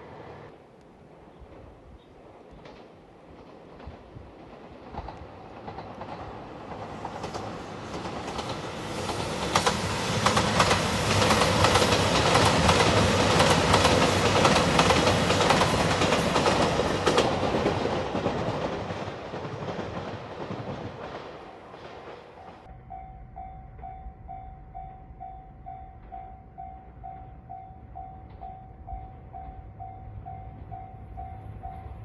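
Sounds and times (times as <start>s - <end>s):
diesel train passing at speed: 0.0s - 32.0s
wheels clicking over rail joints: 2.5s - 22.7s.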